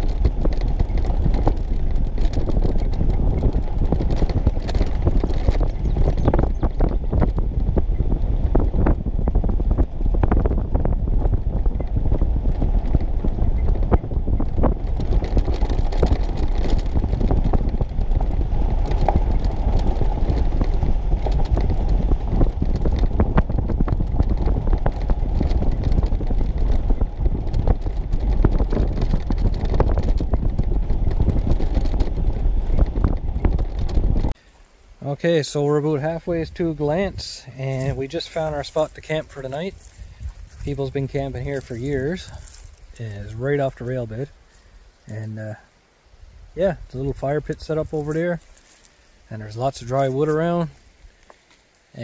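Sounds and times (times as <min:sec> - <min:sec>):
knocks and rattles from bumps: 0:00.0 - 0:34.4
vehicle engine and tyres rumbling: 0:00.0 - 0:52.0.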